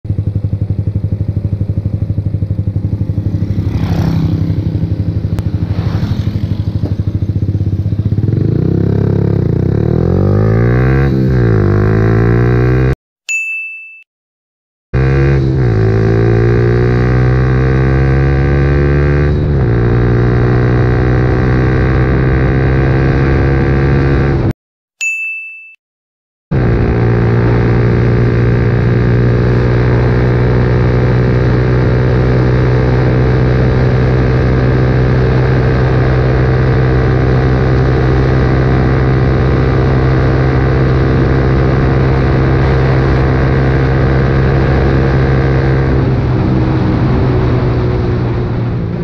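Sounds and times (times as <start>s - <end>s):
motorcycle engine revving: 0.1s - 13.0s, 15.0s - 24.5s, 26.5s - 49.0s
short ding: 13.3s - 14.1s, 25.0s - 25.8s.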